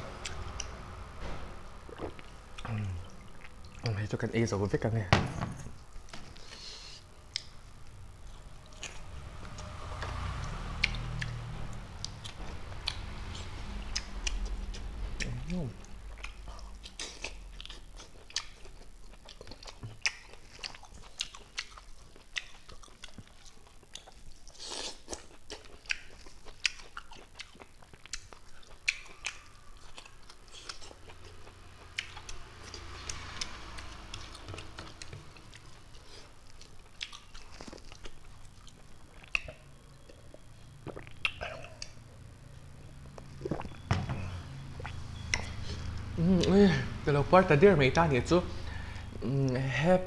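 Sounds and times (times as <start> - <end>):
person chewing with wet mouth clicks: 7.3 - 7.6, 10.8 - 11.4, 13.9 - 33.5, 36.5 - 42.0, 44.8 - 46.5.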